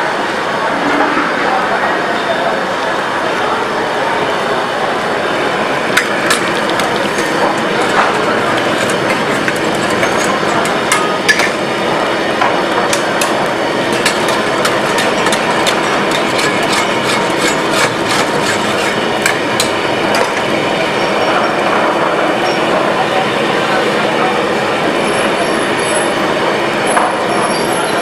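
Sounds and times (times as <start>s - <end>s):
loud cooking noise: 0.0s - 28.0s
bubbling gravy: 5.8s - 11.8s, 12.6s - 20.3s
metal utensils clinking on wok: 6.0s - 11.6s, 12.9s - 20.4s.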